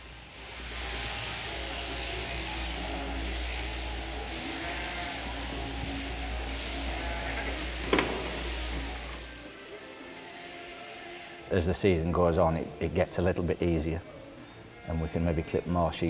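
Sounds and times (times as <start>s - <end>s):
shearing handpiece buzzing: 0.0s - 16.0s.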